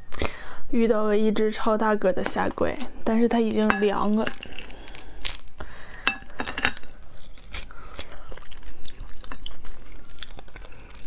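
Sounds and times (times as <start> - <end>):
biting and chewing: 6.2 - 11.0.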